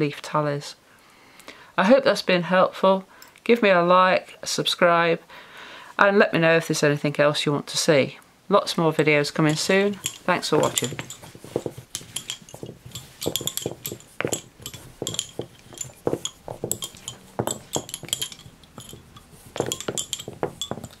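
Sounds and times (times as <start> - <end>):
lace bobbins clicking together: 9.5 - 21.0.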